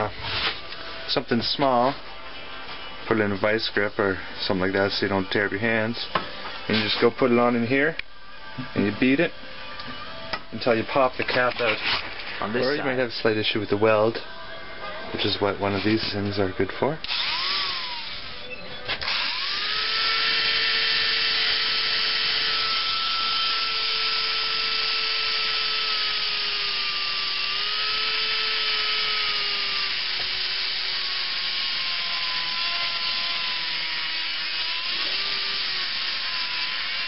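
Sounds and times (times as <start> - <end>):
power grinder grinding steel: 19.0 - 37.0.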